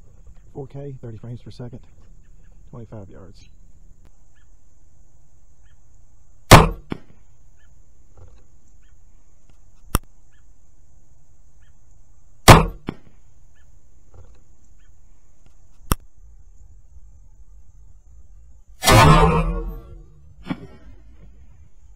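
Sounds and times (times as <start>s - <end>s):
bolt striking target: 6.5s - 7.1s, 12.5s - 13.0s, 18.8s - 20.8s
crossbow string crack: 15.4s - 16.1s.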